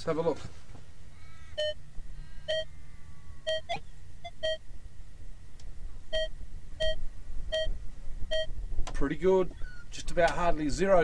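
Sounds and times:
metal detector beeps: 3.5s - 4.6s, 6.1s - 7.7s, 8.3s - 8.5s.

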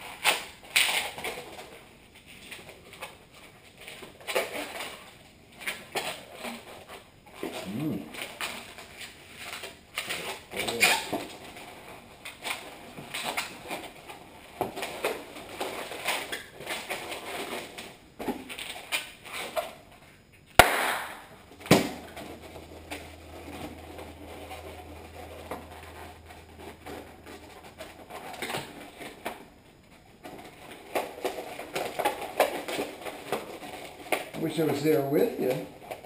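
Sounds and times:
balloon squeaking as twisted: 7.4s - 8.4s, 10.1s - 11.3s
sharp balloon crack: 20.5s - 22.2s.

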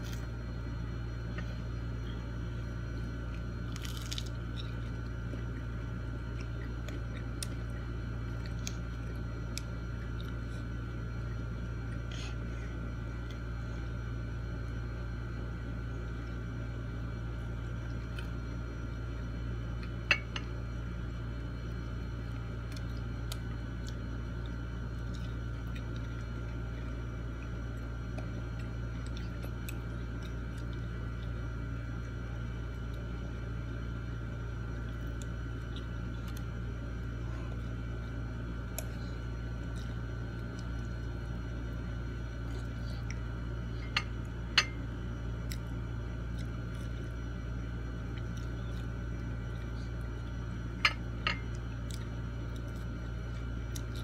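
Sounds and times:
steady low hum: 0.0s - 54.0s
chewing: 48.0s - 54.0s.

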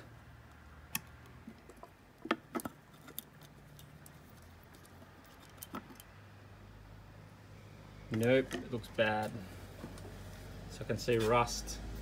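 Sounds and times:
light clicks and taps of parts: 0.4s - 6.2s.

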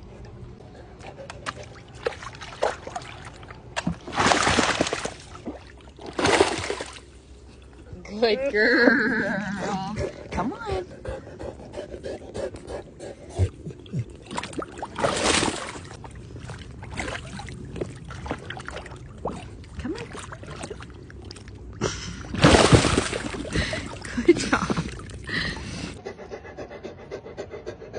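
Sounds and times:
pool water splashing: 1.1s - 7.7s, 13.6s - 26.0s.

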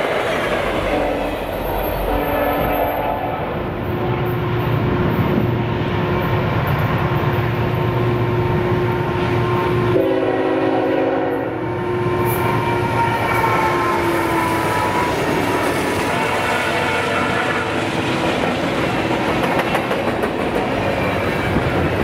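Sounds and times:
train rumbling by: 0.0s - 22.0s
train horn: 0.7s - 4.4s, 8.8s - 18.0s.

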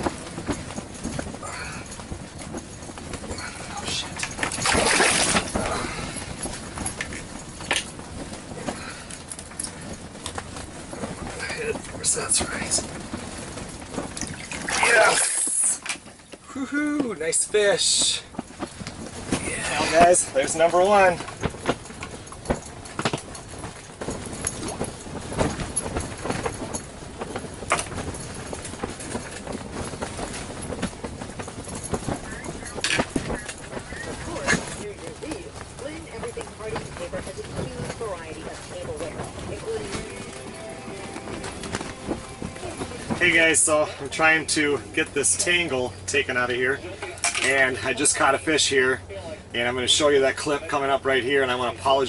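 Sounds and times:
handling knocks and clicks: 0.0s - 14.8s, 18.3s - 44.0s
hand scooping slush and ice: 14.6s - 15.8s.

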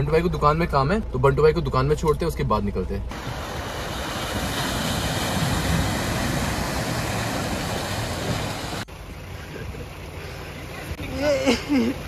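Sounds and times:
stream flowing: 3.1s - 8.9s
water splashing: 3.1s - 8.9s
car engine running: 5.4s - 12.0s.

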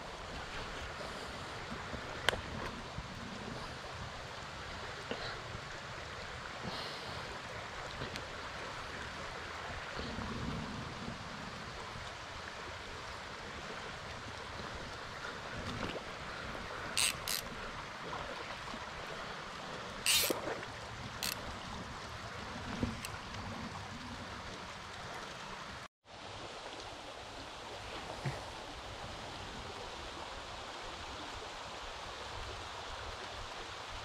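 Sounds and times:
stream rushing over rocks: 0.0s - 34.0s
sharp water hisses: 16.9s - 17.5s, 20.0s - 20.6s.

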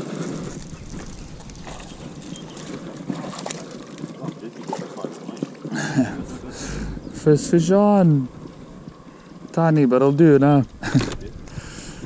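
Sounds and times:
wind noise on microphone: 0.0s - 3.3s, 10.2s - 12.0s
light water splashing: 0.0s - 9.6s.

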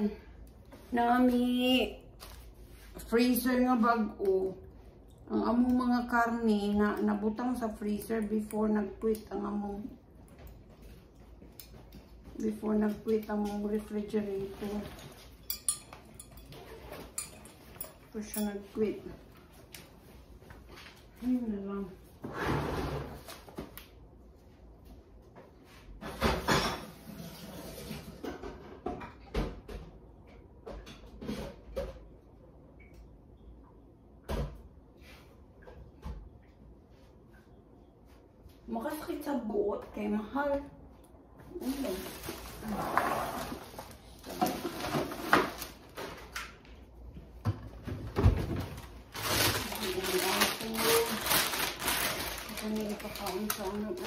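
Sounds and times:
plastic bags crinkling: 41.6s - 46.3s, 48.6s - 54.0s.

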